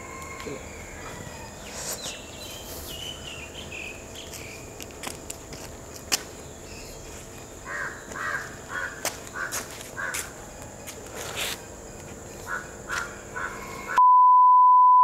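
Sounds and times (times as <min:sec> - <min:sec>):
high insect drone: 0:00.0 - 0:14.0
bird chirping: 0:01.4 - 0:04.7
crow cawing: 0:07.6 - 0:10.3, 0:12.5 - 0:14.0.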